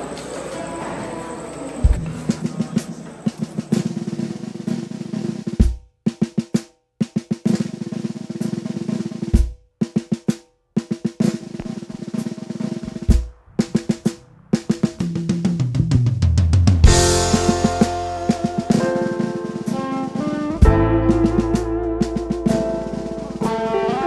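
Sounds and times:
snare drum rolls: 0.0s - 24.0s
deep bass drum hits: 12.8s - 18.7s.

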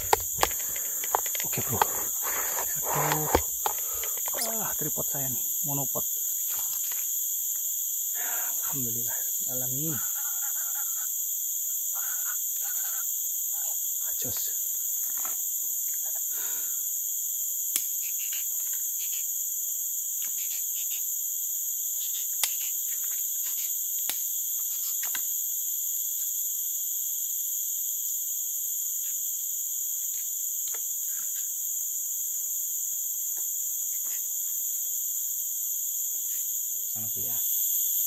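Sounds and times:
sharp clicks: 0.0s - 4.6s
insect chorus: 0.0s - 38.0s.

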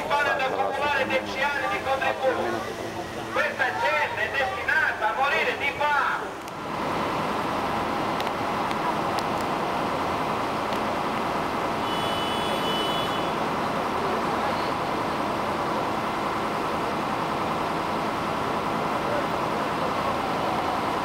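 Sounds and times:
distant voices murmuring: 0.0s - 6.7s.

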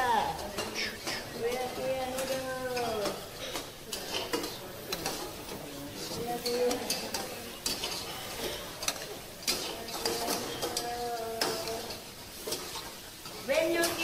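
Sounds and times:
food sizzling: 0.0s - 14.0s
utensil scraping a pan: 0.0s - 14.0s.

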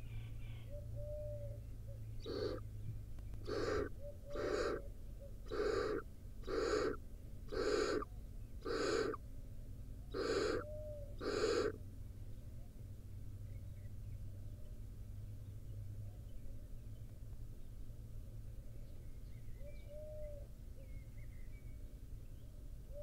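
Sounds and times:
owl chicks rasping hissing calls: 2.2s - 2.6s, 3.4s - 4.8s, 5.4s - 9.2s, 10.1s - 11.8s.

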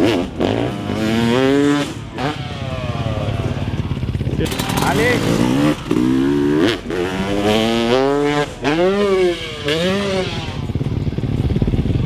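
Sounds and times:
dirt bike engine revving hard: 0.0s - 12.0s.

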